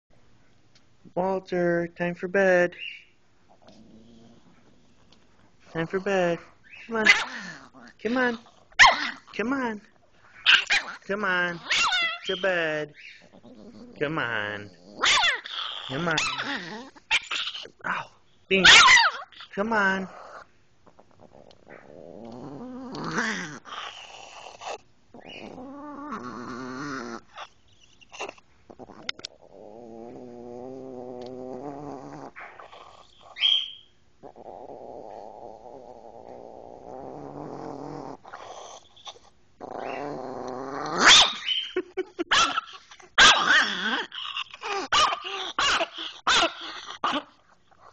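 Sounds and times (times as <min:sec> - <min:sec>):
dog grumbling and growling: 0:03.5 - 0:33.5, 0:34.2 - 0:47.9.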